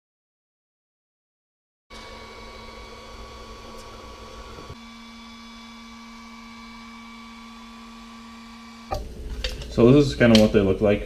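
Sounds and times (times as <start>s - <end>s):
printer fans and motors whining: 1.9s - 10.2s.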